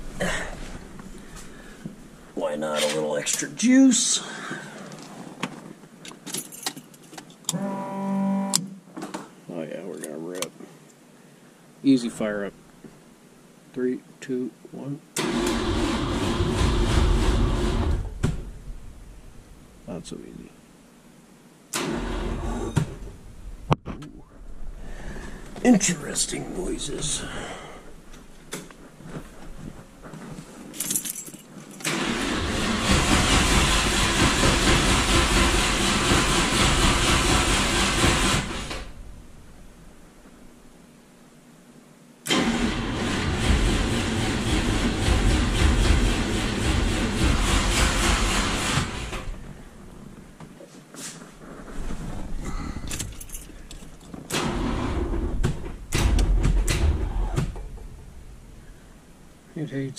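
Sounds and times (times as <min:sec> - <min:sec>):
starter motor cranking engine: 0:15.2 - 0:18.1, 0:21.8 - 0:22.6, 0:31.8 - 0:38.9, 0:42.3 - 0:49.4, 0:54.3 - 0:55.3.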